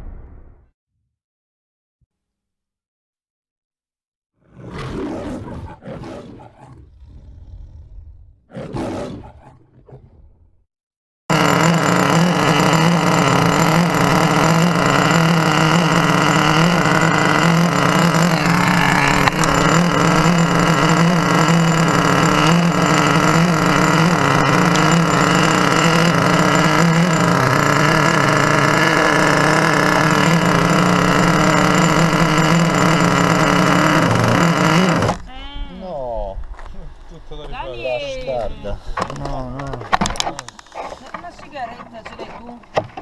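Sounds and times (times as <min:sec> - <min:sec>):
small engine idling: 0:11.3 - 0:35.3.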